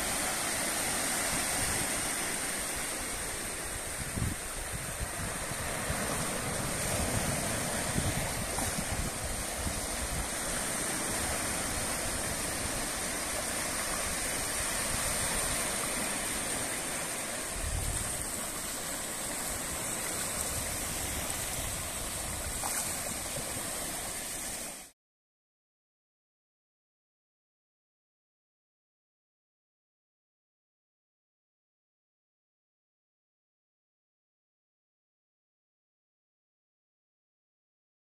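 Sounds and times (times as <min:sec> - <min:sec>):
waves washing on beach: 0:00.0 - 0:25.0
wind rumble on microphone: 0:03.6 - 0:16.7, 0:17.5 - 0:18.8.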